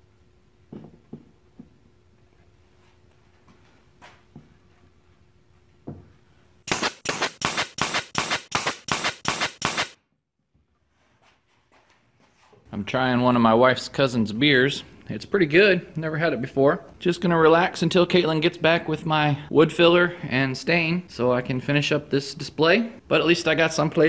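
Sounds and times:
nail gun firing: 6.7s - 10.0s.

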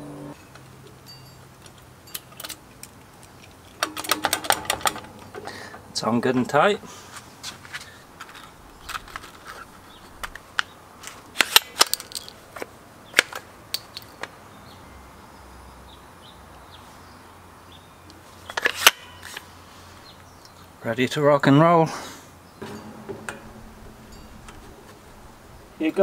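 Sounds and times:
nail tool clicking and clacking: 13.2s - 14.2s.

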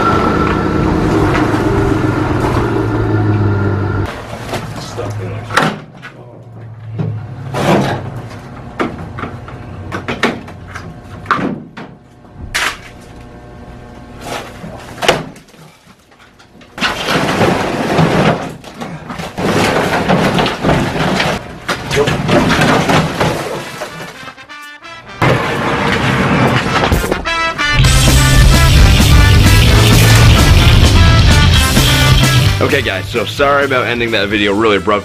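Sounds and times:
low engine hum: 0.0s - 4.1s.

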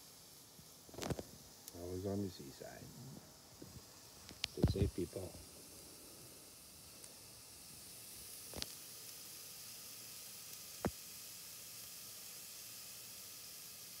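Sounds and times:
steak sizzling on grill: 0.0s - 14.0s
sharp pops: 0.6s - 1.8s, 3.2s - 5.3s, 8.3s - 8.9s, 10.5s - 11.1s.

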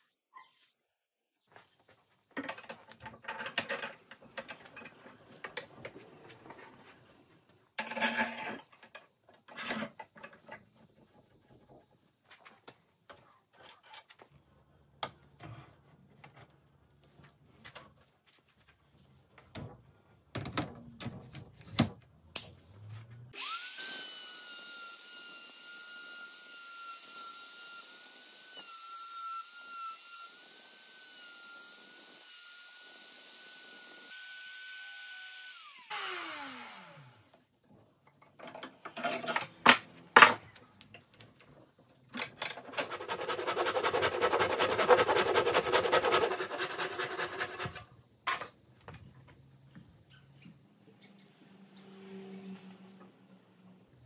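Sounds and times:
router whining: 32.7s - 37.4s.

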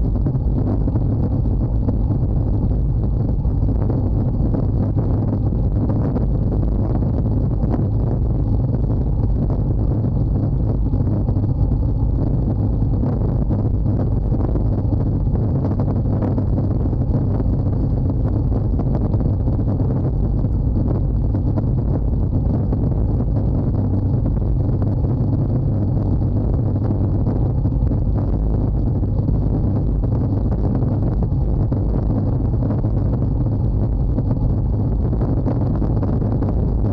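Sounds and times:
wind buffeting microphone: 0.0s - 36.9s.

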